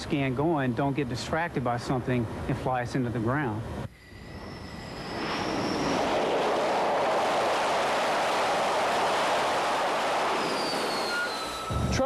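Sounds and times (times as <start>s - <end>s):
jet engines roaring: 4.0s - 12.0s.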